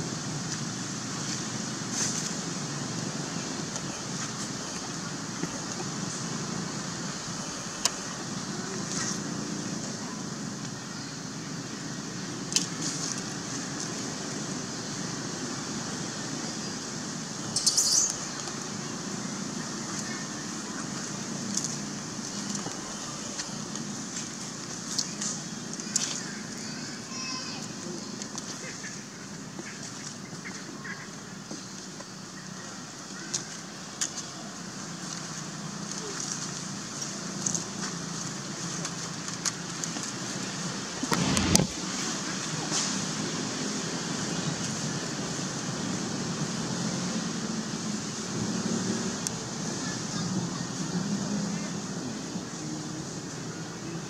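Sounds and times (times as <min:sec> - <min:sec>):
outdoor background hiss: 0:00.0 - 0:54.0
high squeaks: 0:17.5 - 0:18.3
high hiss: 0:41.0 - 0:42.2.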